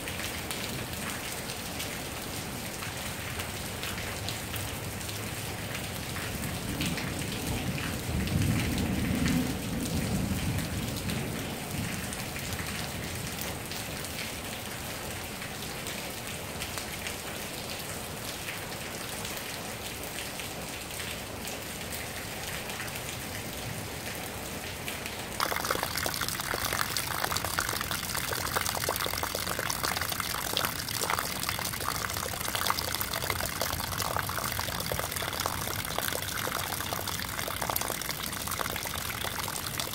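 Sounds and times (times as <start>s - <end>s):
heavy rain falling: 0.0s - 39.9s
runoff splashing into puddle: 25.4s - 39.9s.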